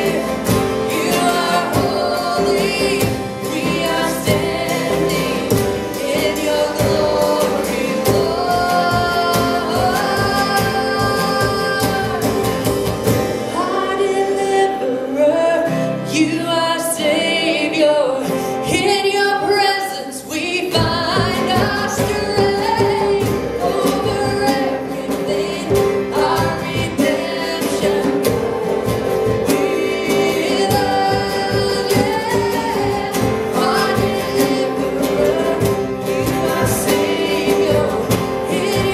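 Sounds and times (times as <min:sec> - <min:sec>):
strummed acoustic guitars: 0:00.0 - 0:38.9
woman singing lead: 0:00.0 - 0:38.9
djembe drumming: 0:20.8 - 0:38.9.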